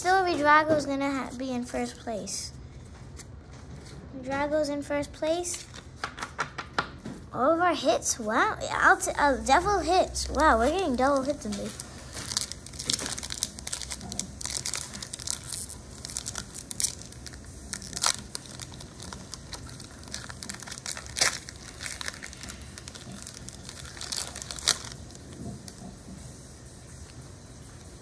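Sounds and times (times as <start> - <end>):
foil wrapper crinkling: 10.3 - 26.0.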